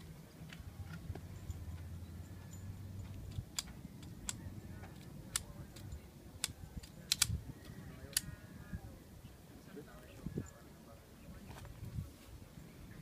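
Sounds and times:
pistol mechanical clicks: 0:03.1 - 0:07.4.

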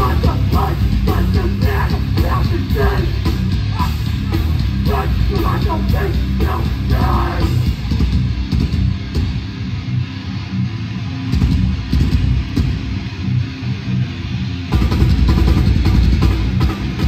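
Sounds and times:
punk band playing live: 0:00.0 - 0:17.0
person shouting: 0:01.6 - 0:07.6.

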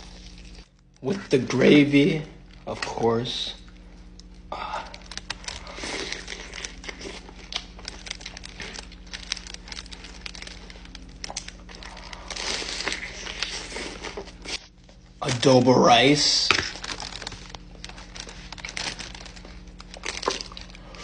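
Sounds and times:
crunching fried chicken: 0:00.0 - 0:21.0
wet chewing: 0:03.6 - 0:14.8, 0:16.6 - 0:21.0.

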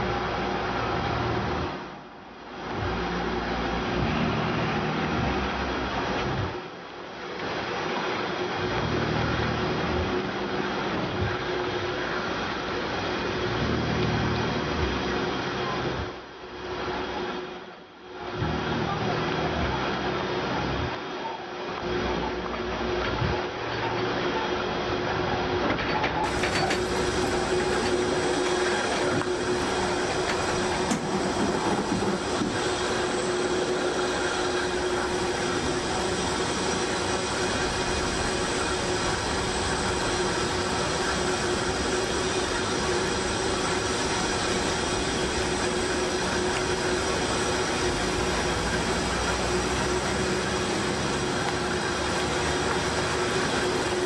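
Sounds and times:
low machinery hum: 0:00.0 - 0:54.0
mid-pitched turbine whine: 0:00.0 - 0:54.0
rattling mechanical drone: 0:00.0 - 0:54.0
jet turbine rushing: 0:26.2 - 0:54.0.

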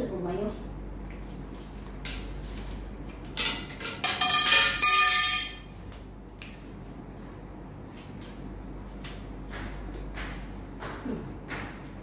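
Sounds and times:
metal tubes clanking: 0:03.4 - 0:05.7.

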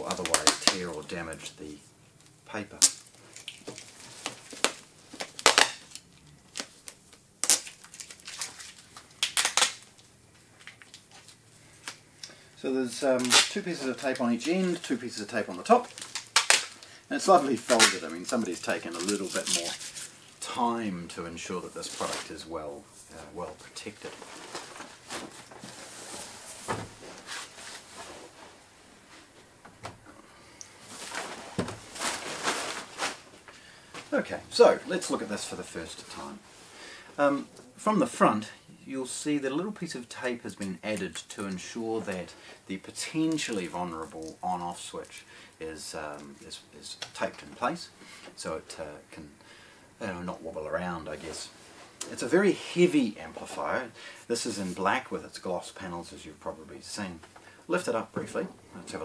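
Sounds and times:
sticky tape peeling crackles: 0:00.0 - 0:01.5, 0:02.2 - 0:12.0, 0:12.9 - 0:20.5
paper rustling: 0:12.8 - 0:20.5, 0:21.6 - 0:29.4, 0:30.8 - 0:34.2.

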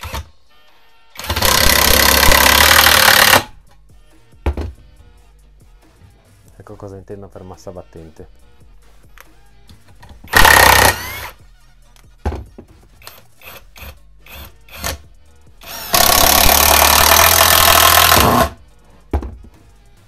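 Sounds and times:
impact driver hammering: 0:01.2 - 0:03.5, 0:15.6 - 0:18.6.

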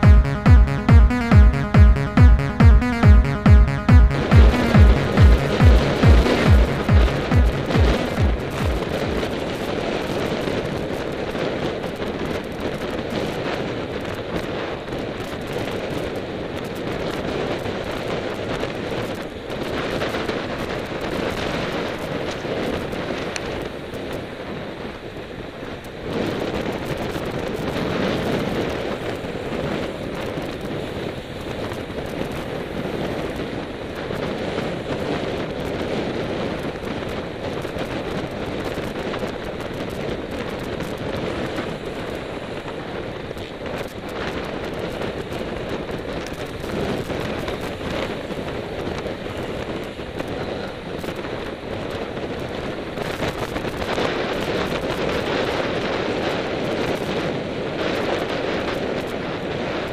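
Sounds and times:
wind buffeting microphone: 0:07.6 - 0:59.9.

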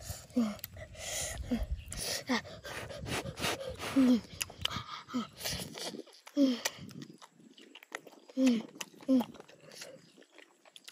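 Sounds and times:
person making short vocal sounds: 0:03.4 - 0:06.8.

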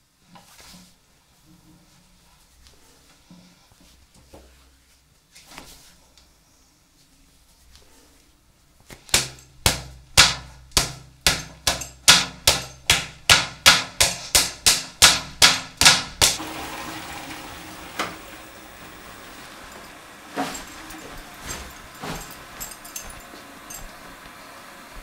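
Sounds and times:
sharp hammer-like bangs: 0:09.2 - 0:16.4.

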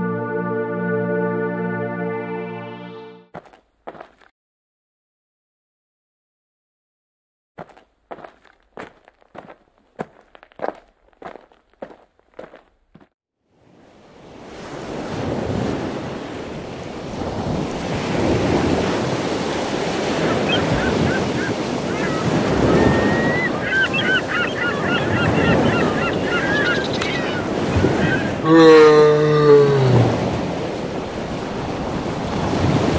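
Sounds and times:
ocean waves washing on shore: 0:13.6 - 0:32.9
birds calling: 0:20.0 - 0:30.4.

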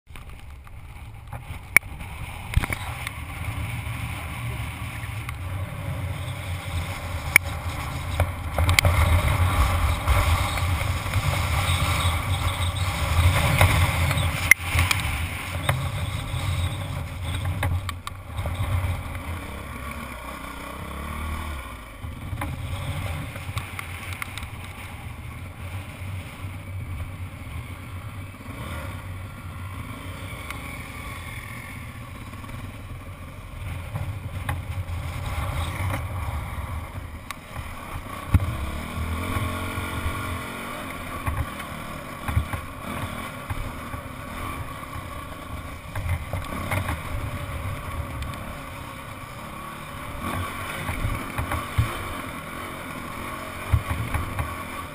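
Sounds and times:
dirt bike engine running: 0:00.1 - 0:54.9.

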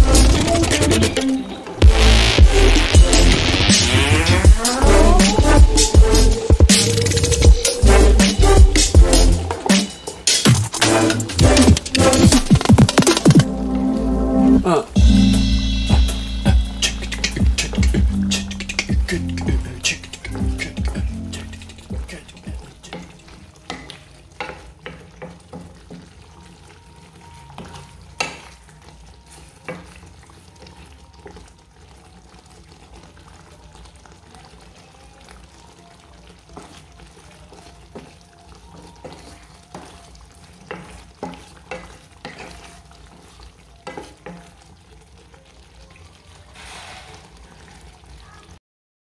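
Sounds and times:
curry sizzling and simmering: 0:00.0 - 0:48.6
spatula scraping metal pot: 0:40.6 - 0:42.8.

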